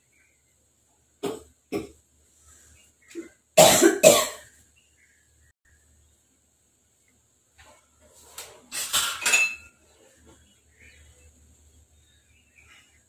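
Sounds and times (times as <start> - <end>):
person coughing: 3.6 - 4.4.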